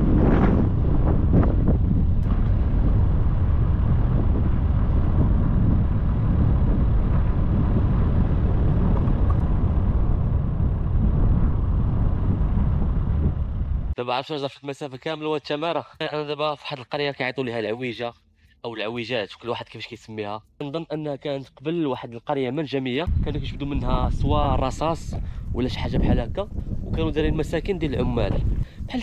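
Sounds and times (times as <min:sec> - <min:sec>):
wind buffeting microphone: 0:00.0 - 0:14.0, 0:23.1 - 0:29.0.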